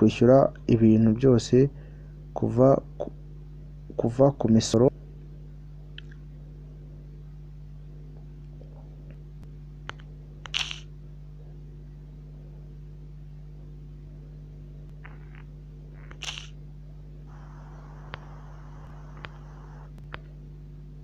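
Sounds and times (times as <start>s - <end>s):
low electrical hum: 0.0s - 21.0s
short hissy sound: 17.3s - 20.0s
click: 17.7s - 20.3s.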